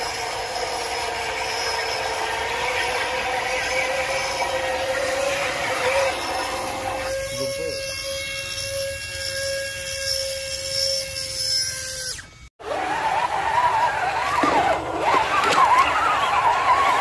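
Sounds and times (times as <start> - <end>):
electric motor whining: 0.0 - 12.5.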